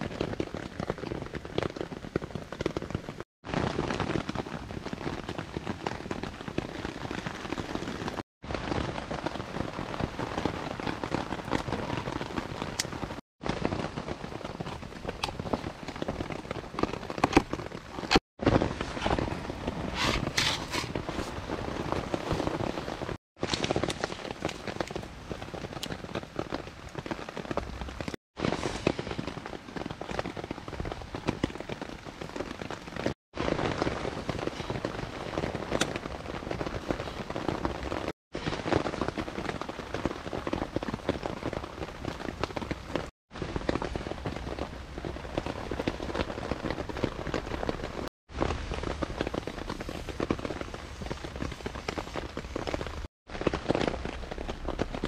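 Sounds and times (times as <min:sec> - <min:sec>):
rain pattering on a tarp: 0:00.0 - 0:55.0.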